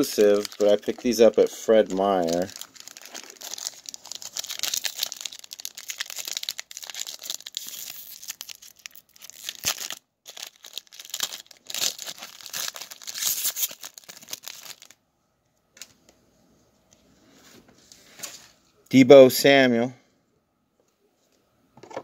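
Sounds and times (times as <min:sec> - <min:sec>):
foil wrapper tearing and crinkling: 0:00.0 - 0:15.0.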